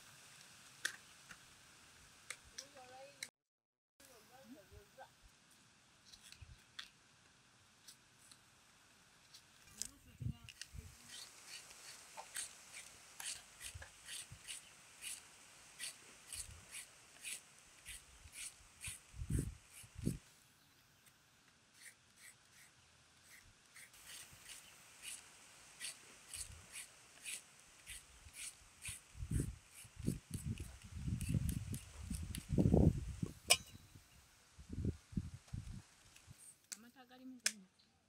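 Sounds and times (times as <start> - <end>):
knife scraping root skin: 10.5 - 20.2, 21.7 - 32.7.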